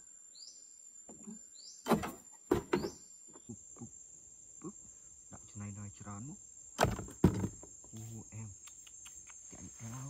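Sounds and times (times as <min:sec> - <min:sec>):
bird chirps: 0:00.0 - 0:03.9
high insect drone: 0:00.0 - 0:10.0.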